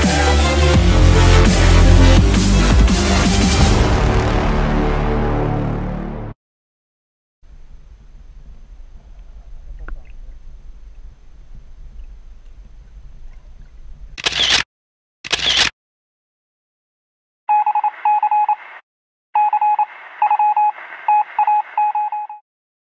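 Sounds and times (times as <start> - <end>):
rapid electronic beeps: 19.4 - 22.4.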